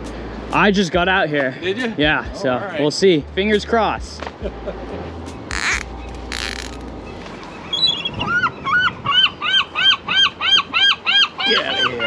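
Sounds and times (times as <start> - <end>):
gull squawking: 5.5 - 6.8, 7.5 - 12.0.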